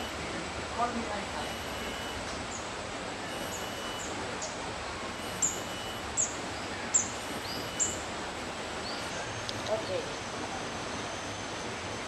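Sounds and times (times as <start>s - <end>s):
steady background hiss: 0.0s - 12.0s
bird chirping: 5.2s - 8.0s.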